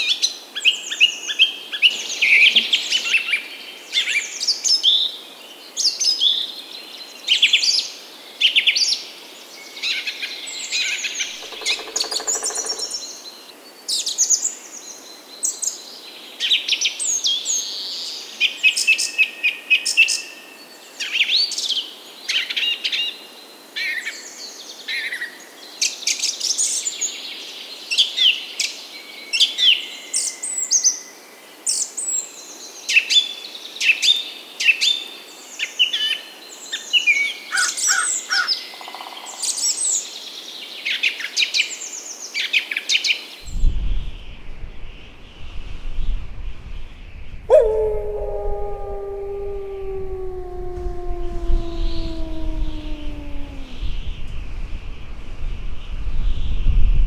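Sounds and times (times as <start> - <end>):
songbirds singing: 11.2 - 13.8, 47.0 - 54.4.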